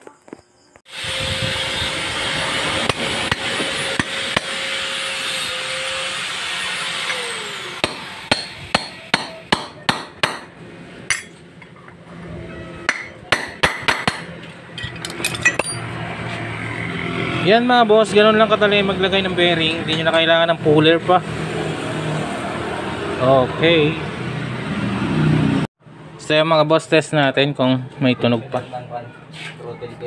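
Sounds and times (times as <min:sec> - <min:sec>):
mechanical hum with falling tone: 0:00.9 - 0:08.3, 0:10.5 - 0:13.3
hammer striking steel drift: 0:02.4 - 0:05.6, 0:07.0 - 0:11.4, 0:12.8 - 0:16.0.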